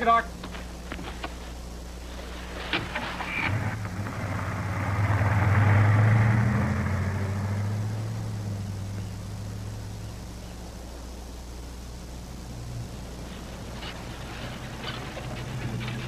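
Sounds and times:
car driving off on dirt: 2.7s - 10.6s, 12.4s - 16.0s.

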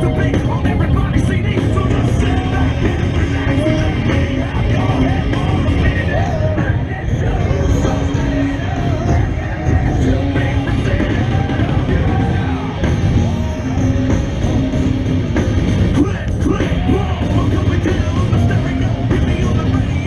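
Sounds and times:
rock music with singing: 0.0s - 20.0s.

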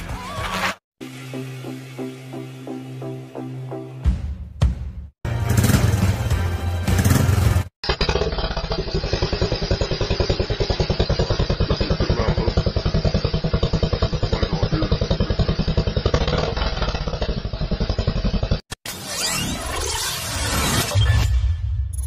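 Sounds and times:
motorcycle engine running: 5.3s - 18.7s.

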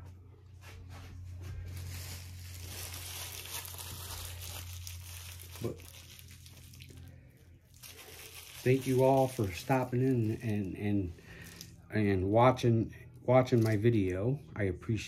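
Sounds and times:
steady low hum: 0.0s - 15.0s
plastic packaging crinkling: 1.6s - 11.8s, 13.4s - 14.2s.

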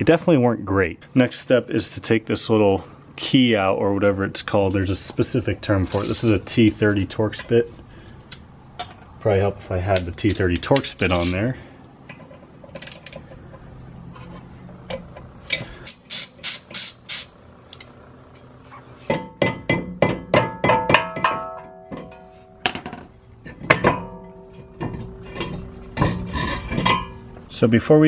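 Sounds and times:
metal clicks and clinks: 12.7s - 13.4s
ringing metallic knocks: 19.1s - 23.0s, 23.6s - 25.6s.

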